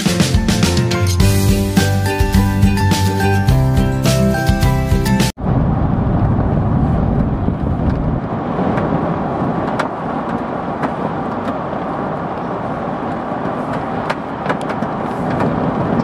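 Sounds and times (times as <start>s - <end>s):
tyre and wind road noise: 0.0s - 16.0s.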